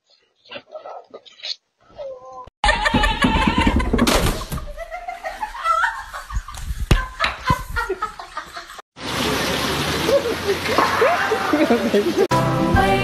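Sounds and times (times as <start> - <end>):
people laughing: 2.6 - 8.8, 10.0 - 12.3.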